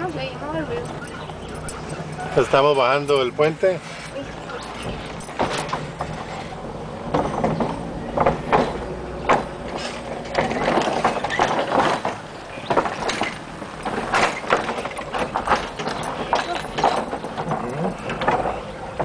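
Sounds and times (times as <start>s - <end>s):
wooden planks clattering under tyres: 0.0s - 19.0s.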